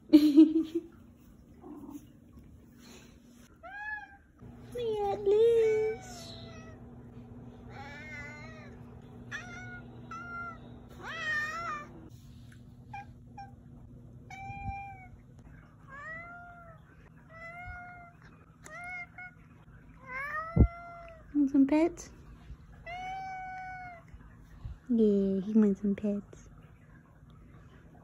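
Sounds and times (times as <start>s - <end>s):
low steady hum: 0.0s - 28.0s
cat meowing: 7.7s - 12.1s.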